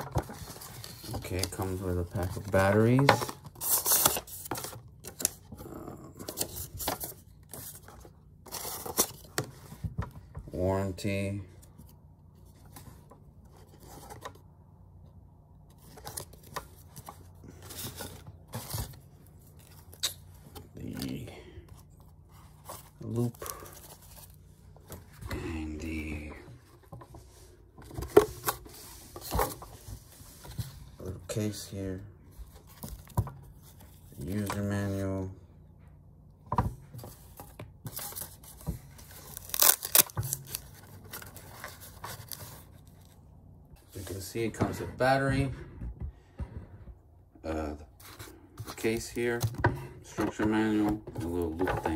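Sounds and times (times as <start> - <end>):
paper and cardboard rustling: 0.0 - 11.0, 11.6 - 14.4, 15.7 - 31.7, 36.6 - 43.2, 48.0 - 51.9.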